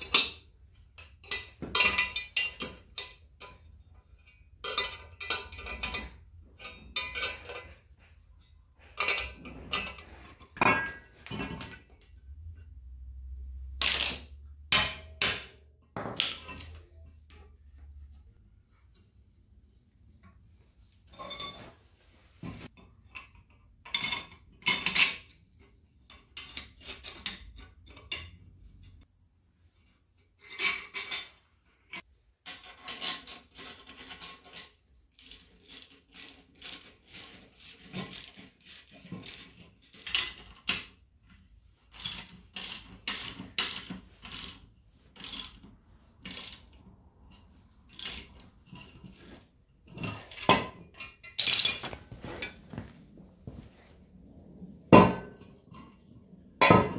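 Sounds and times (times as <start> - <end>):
clinks of steel tools: 1.0 - 7.8, 8.4 - 12.2, 21.1 - 21.7, 49.9 - 52.6
ratchet wrench clicking: 35.2 - 40.2, 42.0 - 44.6, 45.2 - 45.6, 46.2 - 46.7, 47.9 - 48.4.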